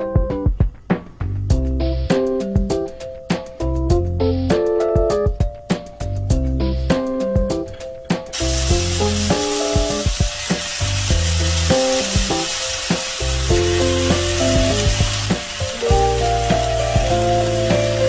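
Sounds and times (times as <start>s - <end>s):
light background music: 0.0s - 18.0s
potatoes sizzling in hot oil: 8.3s - 18.0s.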